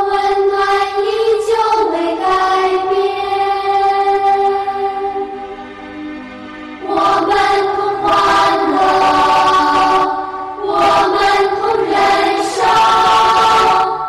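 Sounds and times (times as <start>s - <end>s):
many voices chanting in unison: 6.8s - 14.0s.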